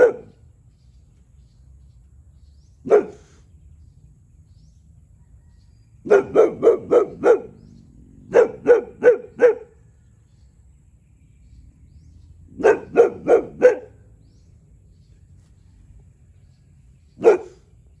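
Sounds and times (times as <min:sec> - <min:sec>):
dog barking: 0:00.0 - 0:00.4, 0:02.8 - 0:03.4, 0:06.0 - 0:09.8, 0:12.5 - 0:14.0, 0:17.2 - 0:17.7.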